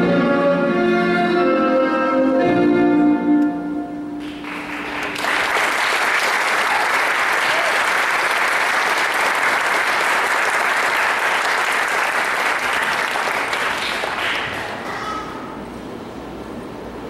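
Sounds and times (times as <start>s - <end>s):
audience applauding: 4.2s - 14.9s.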